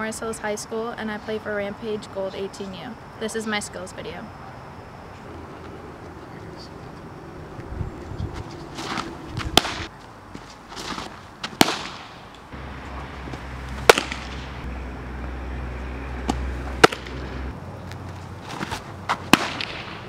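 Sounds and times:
low steady hum: 12.3 - 18.4
ball smacking into leather mitt: 13.8 - 14.4, 16.2 - 17.2.

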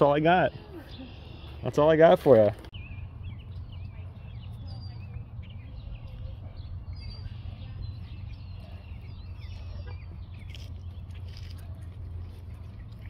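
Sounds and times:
small birds chirping: 0.0 - 13.0
steady low rumble: 2.7 - 13.0.

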